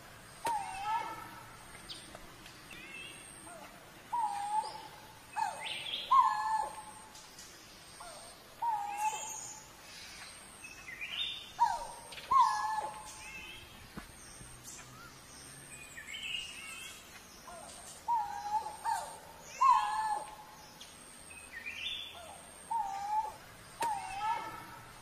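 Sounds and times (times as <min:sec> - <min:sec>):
cuckoo low sliding calls: 0:11.6 - 0:13.2, 0:18.1 - 0:20.4, 0:22.2 - 0:24.9.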